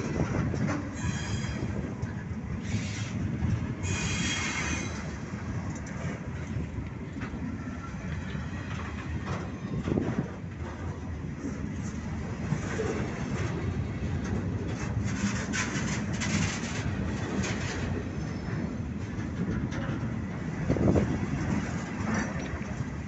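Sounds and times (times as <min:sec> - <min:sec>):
train wheels rumbling on rail: 0:00.0 - 0:23.0
high wheel squeal: 0:00.9 - 0:01.8, 0:02.6 - 0:03.2, 0:03.8 - 0:05.2.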